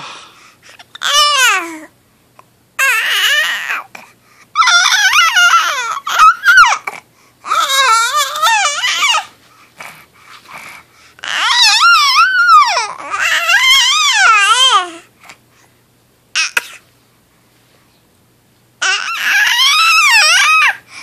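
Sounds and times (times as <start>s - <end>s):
infant babbling and cooing: 0.7s - 1.9s, 2.8s - 15.1s, 16.4s - 16.8s, 18.8s - 20.8s.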